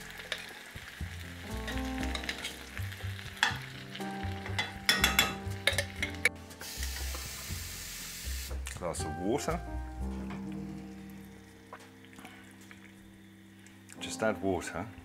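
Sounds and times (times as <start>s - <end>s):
food sizzling in a skillet: 0.0s - 8.7s.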